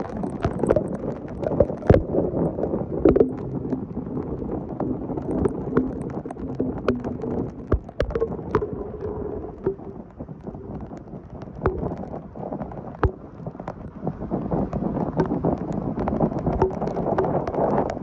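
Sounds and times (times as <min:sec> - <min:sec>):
rain: 0:00.0 - 0:18.0
wind buffeting microphone: 0:00.0 - 0:18.0
sharp taps and knocks: 0:05.2 - 0:12.2, 0:12.9 - 0:13.8, 0:14.7 - 0:18.0.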